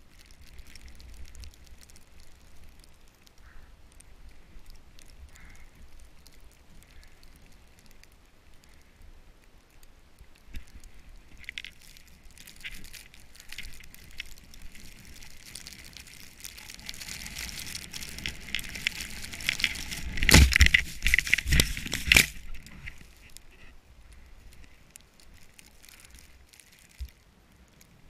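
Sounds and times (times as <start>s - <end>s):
hard thumps and scrapes: 18.2s - 23.8s.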